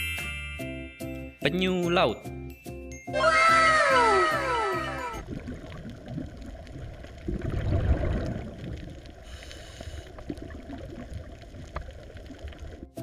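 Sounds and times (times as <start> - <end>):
underwater rush of water: 4.3 - 13.0.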